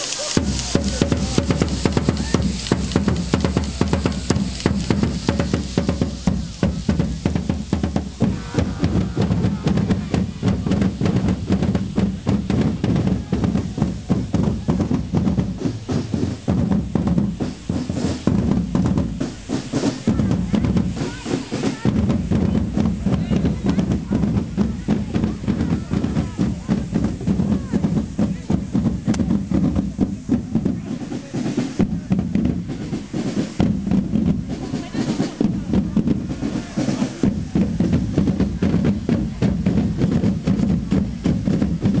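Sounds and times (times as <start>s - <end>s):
marching band snare and bass drums: 0.0s - 42.0s.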